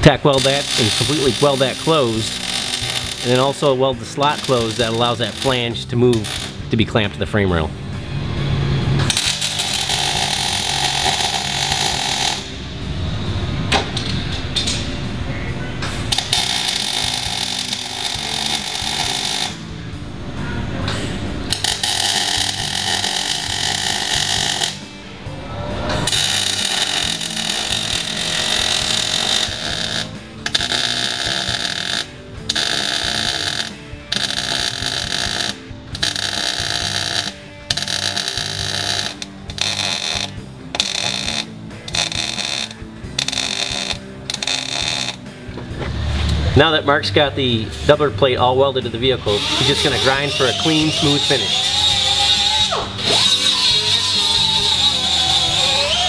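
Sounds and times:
welder arc crackling: 0.0s - 6.6s, 9.0s - 12.6s, 16.1s - 19.7s, 21.5s - 24.9s, 26.0s - 45.3s, 49.2s - 56.0s
background music: 0.0s - 56.0s.

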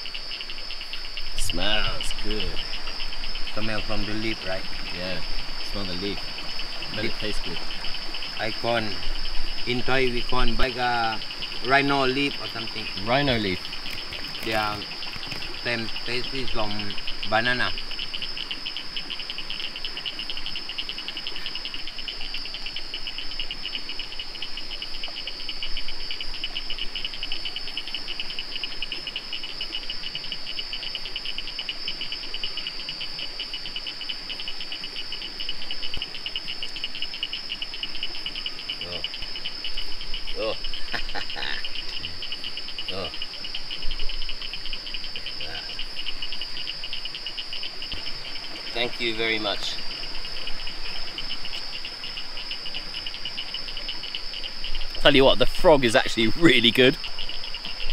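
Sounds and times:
insect pulsing trill: 0.0s - 57.9s
insects shrilling: 0.0s - 57.9s.

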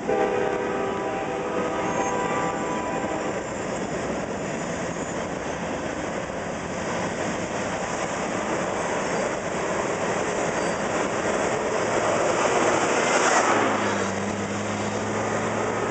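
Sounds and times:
train horn blast: 0.0s - 3.4s
steel wheels on rail: 0.0s - 15.9s.

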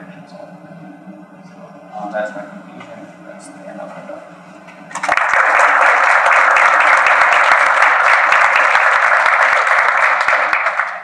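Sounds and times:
people talking: 0.0s - 4.4s
audience applauding: 5.0s - 11.0s.

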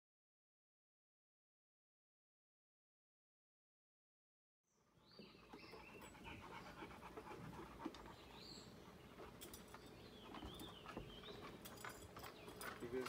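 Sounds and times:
dog panting: 5.2s - 12.8s.

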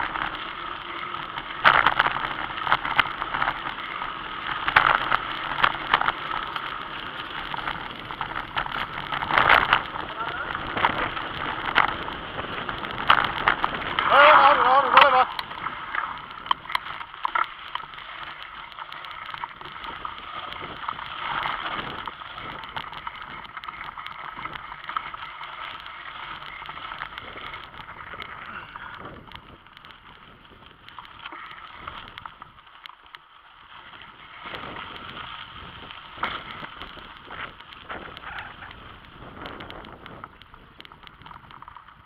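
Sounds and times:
bicycle rolling over gravel: 0.0s - 42.0s
bike rattling over bumps: 0.0s - 42.0s.

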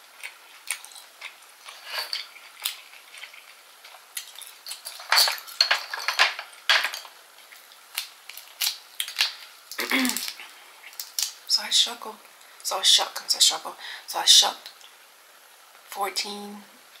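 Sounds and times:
shrimp shell cracking: 6.8s - 11.4s.

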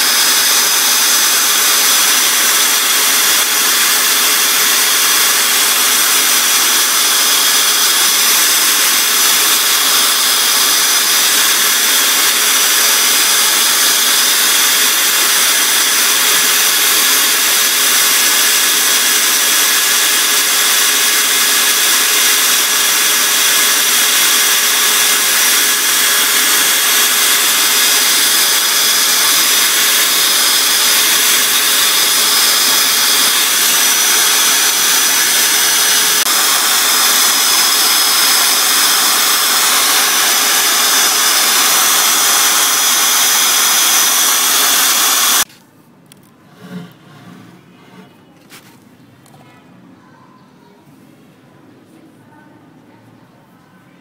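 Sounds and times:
small electric motor whining: 0.0s - 45.5s.

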